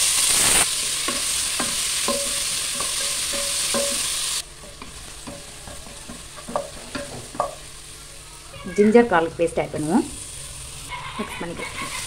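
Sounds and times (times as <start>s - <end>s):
onions sizzling in oil: 0.0s - 12.0s
wooden spatula scraping pan: 10.9s - 12.0s.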